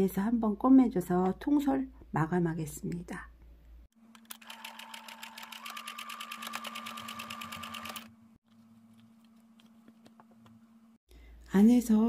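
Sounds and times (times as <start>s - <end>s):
electric sewing machine stitching: 4.3s - 8.1s.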